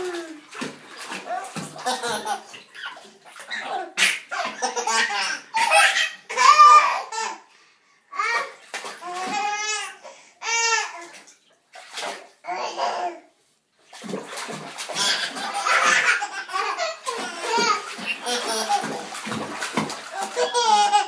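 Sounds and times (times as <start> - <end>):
water splashing: 0.0 - 5.7, 8.5 - 9.6, 11.1 - 12.4, 13.9 - 21.0.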